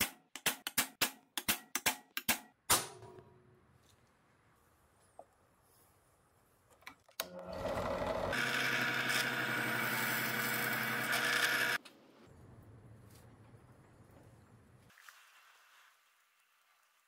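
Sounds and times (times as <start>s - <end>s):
drill press drilling metal: 7.2s - 11.8s.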